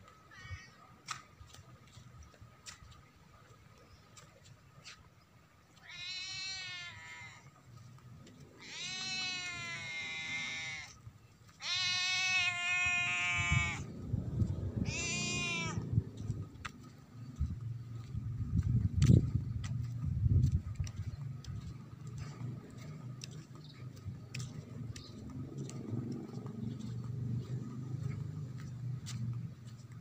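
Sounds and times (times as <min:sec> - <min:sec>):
animal calling with high cries: 0:05.8 - 0:07.6, 0:08.6 - 0:13.9, 0:14.8 - 0:15.9
low rumbling noise: 0:13.1 - 0:29.6.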